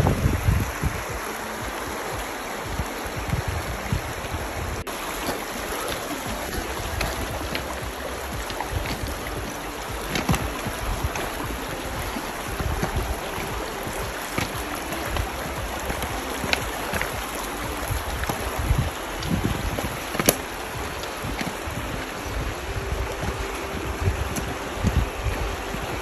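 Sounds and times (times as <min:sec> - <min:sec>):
creek running over stones: 0:00.0 - 0:26.0
wind rumble on microphone: 0:00.0 - 0:26.0
footsteps on rocks: 0:00.1 - 0:26.0.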